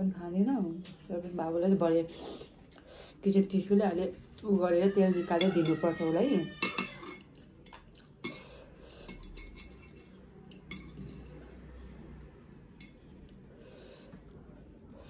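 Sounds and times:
chopsticks clinking on plate: 5.4 - 11.4.

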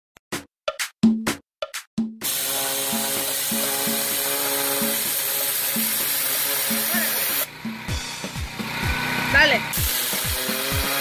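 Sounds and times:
background music: 0.3 - 11.0
pressure washer spraying wall: 2.2 - 11.0.

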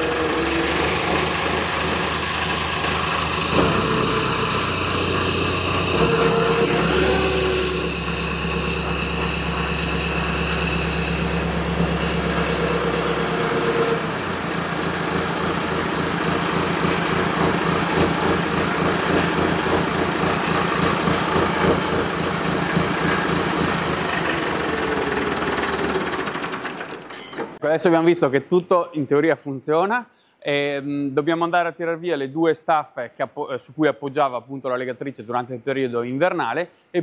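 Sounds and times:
hydraulic whine: 0.0 - 27.6
tractor diesel engine: 0.0 - 27.6.

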